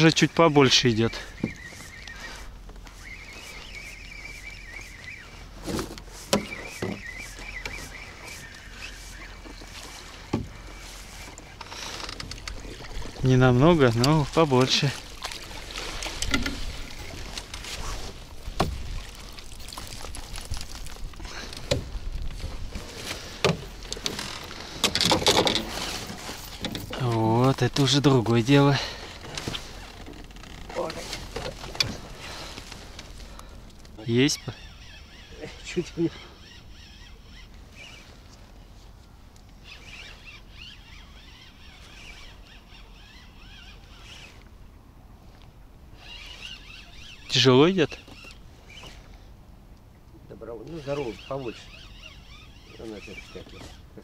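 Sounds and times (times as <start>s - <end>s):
small birds chirping: 0.0s - 17.7s, 30.8s - 44.5s, 45.9s - 49.3s, 50.2s - 54.0s
knocks and handling in a boat: 0.9s - 34.0s, 48.0s - 49.3s.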